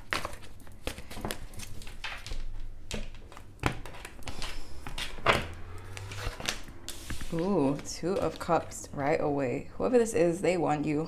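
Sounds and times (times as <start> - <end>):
cards being shuffled: 0.0 - 8.6.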